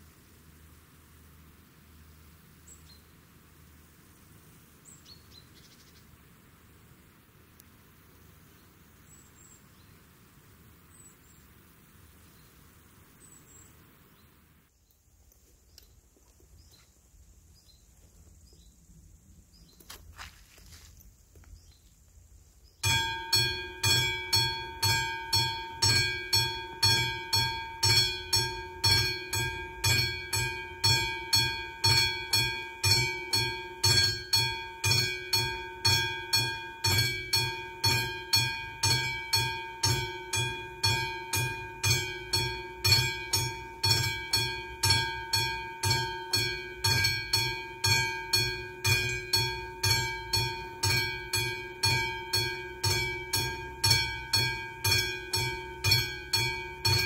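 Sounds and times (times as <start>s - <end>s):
level crossing bell ringing: 22.8s - 57.0s.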